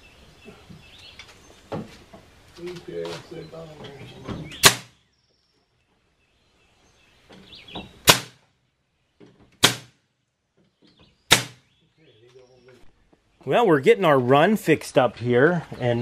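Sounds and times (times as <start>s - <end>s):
nail gun firing into wood: 4.6s - 4.9s, 8.0s - 8.4s, 9.6s - 10.0s, 11.3s - 11.6s.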